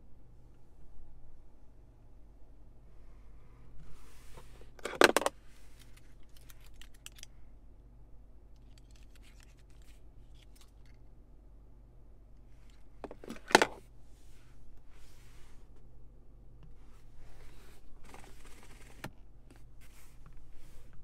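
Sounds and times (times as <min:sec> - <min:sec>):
keys clicking and jingling: 0:05.8 - 0:07.3.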